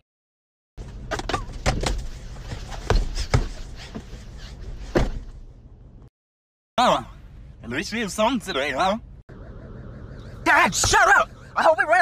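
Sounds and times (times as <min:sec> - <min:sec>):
knocks and thumps in car cabin: 0:01.1 - 0:04.1, 0:04.8 - 0:05.5.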